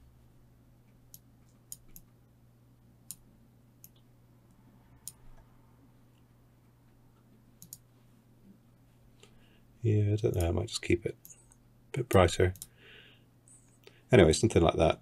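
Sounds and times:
faint low hum: 0.0 - 15.0
computer mouse clicks: 1.1 - 2.2, 5.0 - 5.4, 7.6 - 7.8, 11.2 - 12.7.

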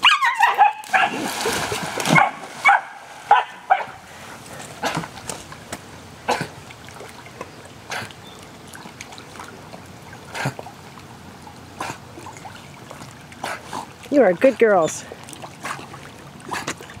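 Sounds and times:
dogs swimming in water: 0.0 - 17.0.

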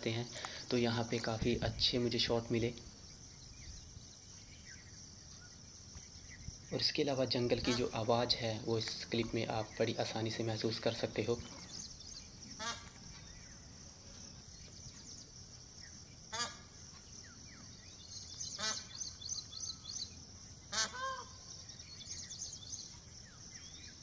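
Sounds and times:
peafowl honking calls: 7.5 - 8.5, 12.5 - 13.8, 16.3 - 17.0, 18.4 - 22.1.

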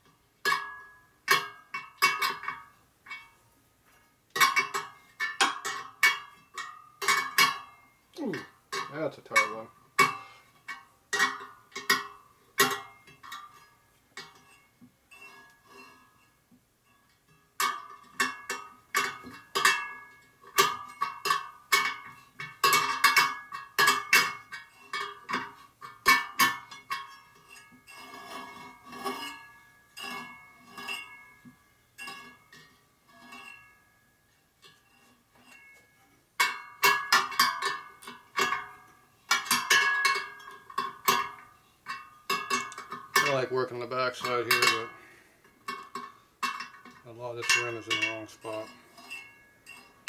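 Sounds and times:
metallic spoke pings: 36.4 - 50.0.

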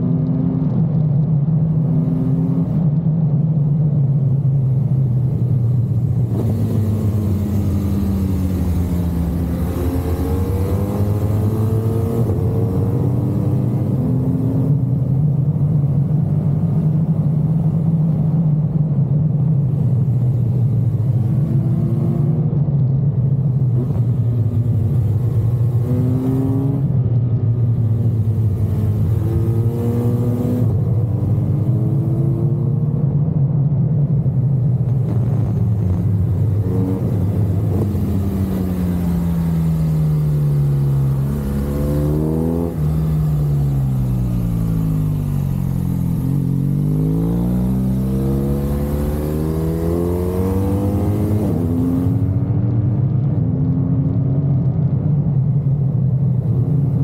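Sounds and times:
motorcycle engine revving: 1.6 - 3.0, 4.2 - 18.6, 19.5 - 33.2, 34.2 - 53.8.

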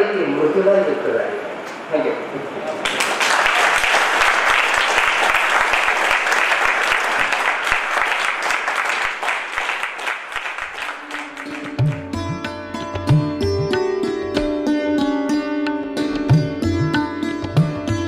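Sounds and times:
audience applauding: 2.8 - 12.1
instrumental music: 10.6 - 18.0.

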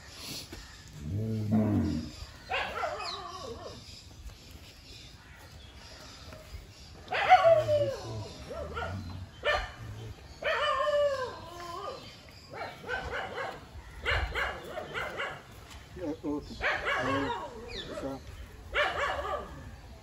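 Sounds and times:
dog barking: 2.5 - 3.2, 7.1 - 7.8, 8.5 - 9.8, 12.5 - 15.5, 16.6 - 19.6.

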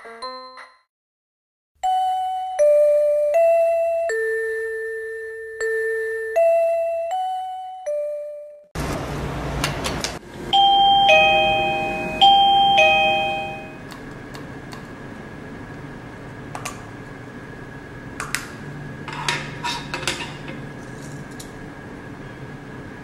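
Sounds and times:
doorbell two-note chime: 1.8 - 8.7, 10.5 - 13.8.

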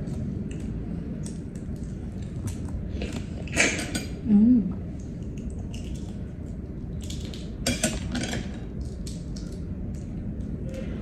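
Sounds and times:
low steady hum: 0.0 - 11.0
eggshell clicking and cracking: 8.6 - 10.5.

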